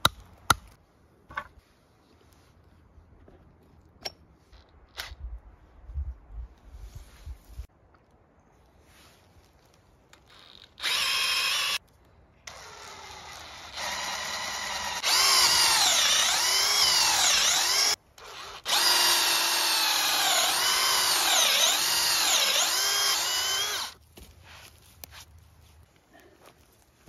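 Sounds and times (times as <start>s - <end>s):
cordless drill boring into log: 10.8s - 11.8s, 12.5s - 24.0s.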